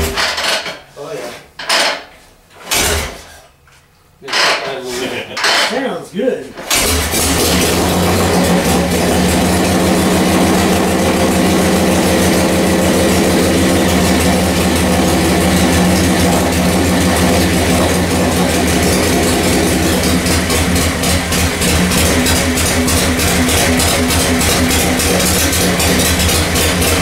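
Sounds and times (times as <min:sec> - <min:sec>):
motorcycle engine running: 0:06.7 - 0:27.0.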